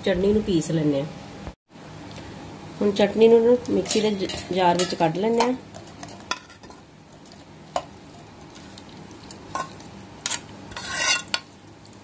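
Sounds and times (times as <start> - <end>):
spoon scraping metal pan: 9.5 - 11.5.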